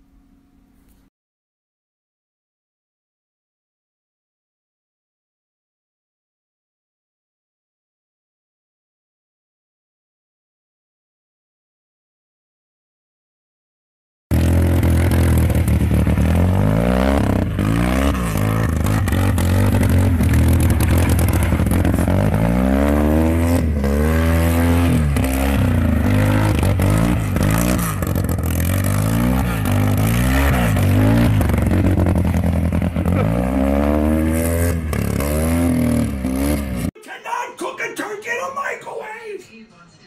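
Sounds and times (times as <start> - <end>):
car engine revving: 14.3 - 36.9.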